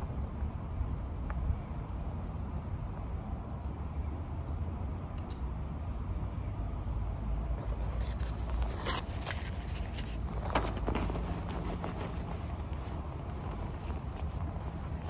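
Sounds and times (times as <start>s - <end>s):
handling clicks and rustles: 7.6s - 15.0s.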